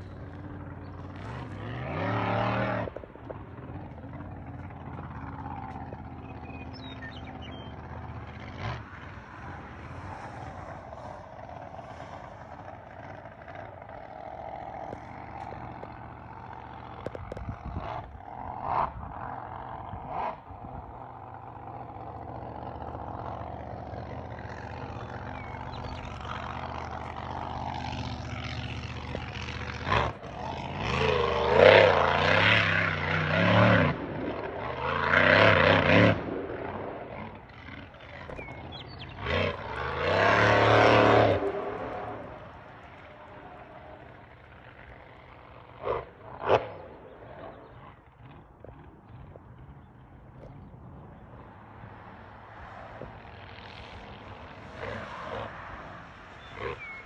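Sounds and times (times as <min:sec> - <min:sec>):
motor drone: 0:00.0 - 0:57.0
vehicle speeding up: 0:00.0 - 0:57.0.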